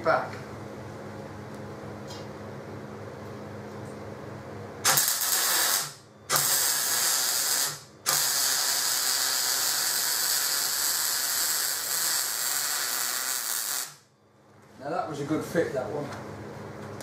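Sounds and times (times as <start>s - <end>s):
welding arc sizzling: 4.8s - 14.1s.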